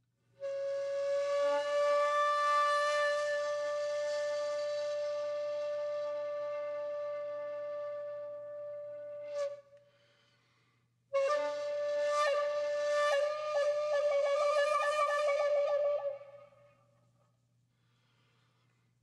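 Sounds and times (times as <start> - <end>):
flute-like long note: 0.4 - 9.8, 11.1 - 16.8.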